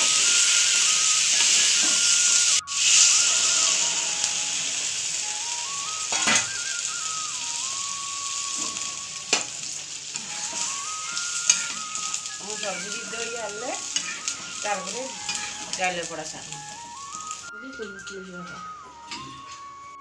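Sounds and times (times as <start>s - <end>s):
curry simmering and sizzling: 0.0s - 17.6s
faint melody: 0.0s - 20.0s.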